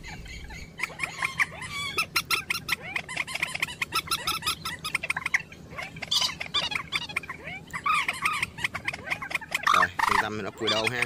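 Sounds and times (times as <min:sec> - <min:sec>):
squealing bird calls from loudspeaker: 0:05.8 - 0:11.0.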